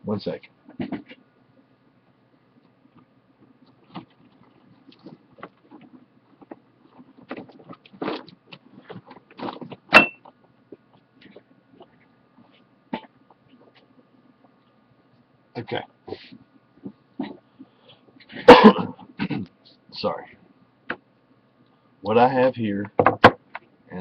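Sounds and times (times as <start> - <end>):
rummaging knocks and rustles: 3.0 - 13.9
sharp metallic clink: 9.9 - 10.2.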